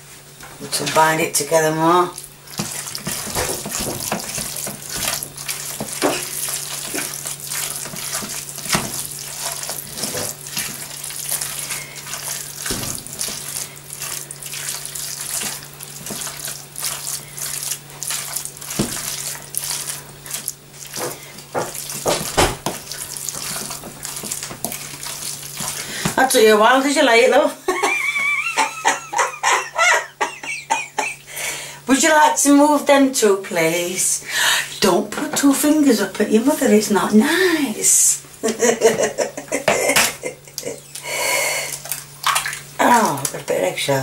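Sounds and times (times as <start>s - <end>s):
wet squelching and scraping: 2.1s - 26.2s, 40.6s - 43.5s.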